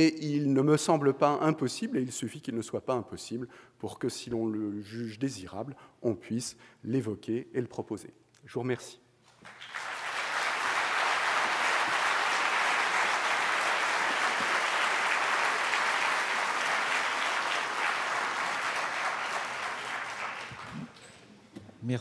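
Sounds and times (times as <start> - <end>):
audience applauding: 9.4 - 21.1.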